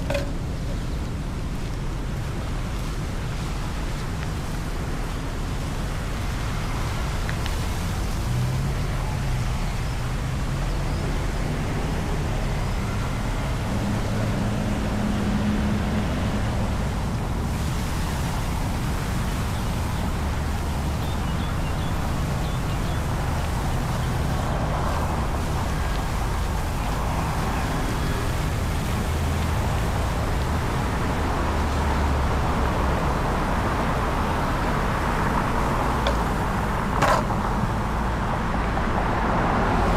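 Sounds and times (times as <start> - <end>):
longboard clacking on concrete: 0.0 - 0.8, 37.0 - 37.5
road traffic: 0.0 - 39.9.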